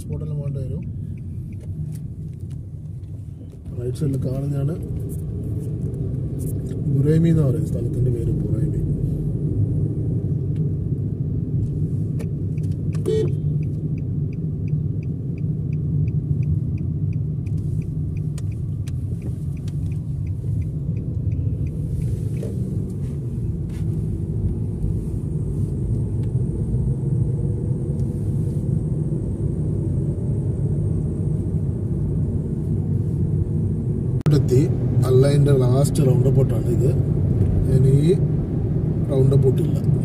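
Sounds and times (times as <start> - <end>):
turn signal ticking: 0.0 - 4.2, 11.7 - 25.0
road and engine rumble in car: 0.0 - 40.0.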